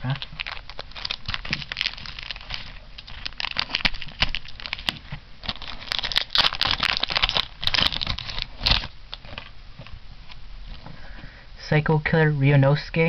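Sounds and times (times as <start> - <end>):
foil wrapper crinkling and tearing: 0.0 - 10.4.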